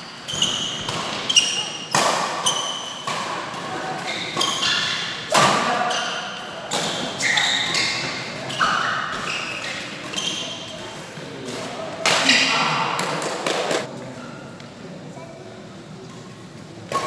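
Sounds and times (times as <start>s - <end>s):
shoes squeaking on court: 0.0s - 3.0s, 5.9s - 10.8s
rackets hitting shuttlecock: 0.4s - 6.1s.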